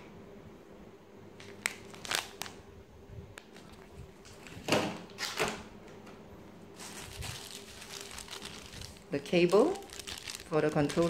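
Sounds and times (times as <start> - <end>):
plastic packaging crinkling: 1.4 - 2.6, 6.8 - 11.0.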